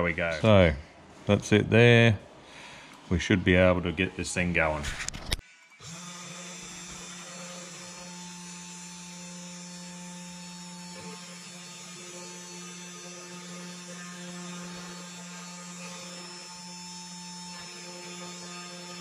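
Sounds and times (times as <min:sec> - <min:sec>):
cnc router spindle motor humming: 0:05.8 - 0:19.0.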